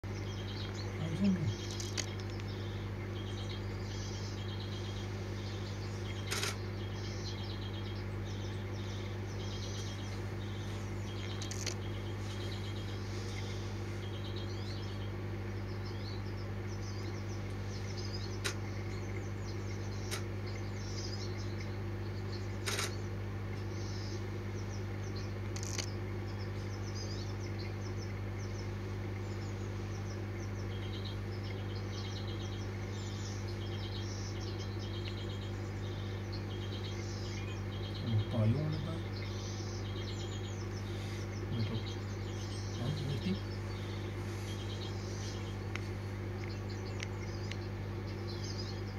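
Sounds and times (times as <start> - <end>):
small birds chirping: 0.0 - 48.9
steady low hum: 0.0 - 48.9
sharp clicks: 1.6 - 2.5, 6.2 - 6.6, 11.2 - 11.8, 20.1 - 20.3, 22.6 - 23.0, 25.4 - 25.9.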